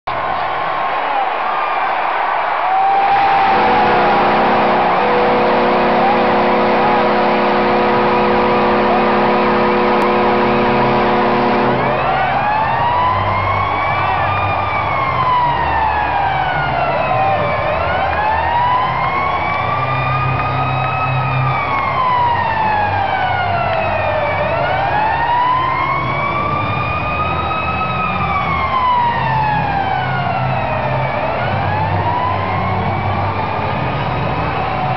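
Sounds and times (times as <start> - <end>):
crowd cheering: 0.1 - 34.9
steady background noise: 0.1 - 34.9
goal siren wailing: 2.7 - 34.9
goal horn: 3.1 - 12.5.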